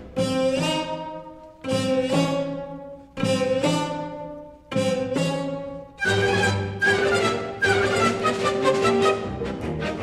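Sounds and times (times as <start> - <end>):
orchestral music with bowed strings: 0.0 - 10.0.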